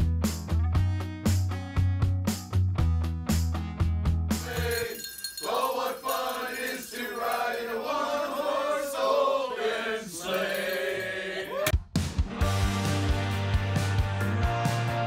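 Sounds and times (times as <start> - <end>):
men singing unaccompanied: 4.4 - 11.7.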